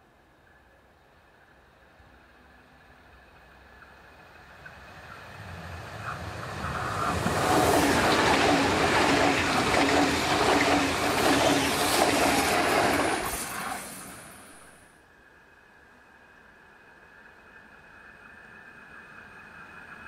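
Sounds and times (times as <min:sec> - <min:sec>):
rhythmic clatter of train wheels: 0:00.0 - 0:20.0
train passing at speed: 0:00.0 - 0:20.0.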